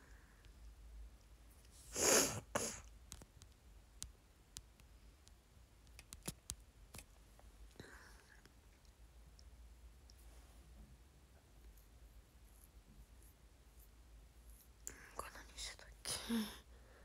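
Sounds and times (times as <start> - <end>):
small objects clicking and tapping: 3.1 - 7.1.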